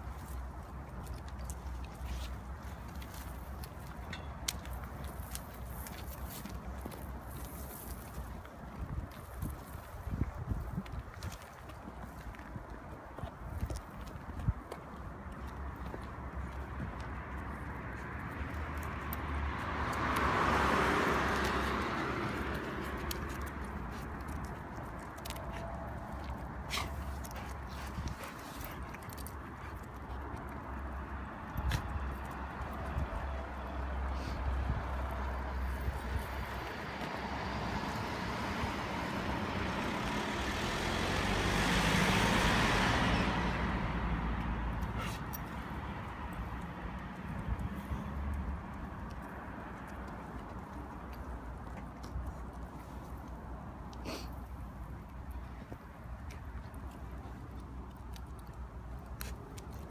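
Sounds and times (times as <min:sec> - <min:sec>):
car passing by: 0:17.8 - 0:24.4, 0:30.9 - 0:51.2
van driving past: 0:37.0 - 0:44.7.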